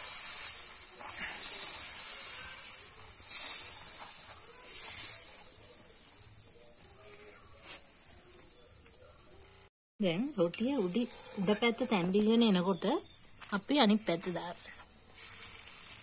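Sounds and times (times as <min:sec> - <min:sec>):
batter sizzling on griddle: 0:00.0 - 0:16.0.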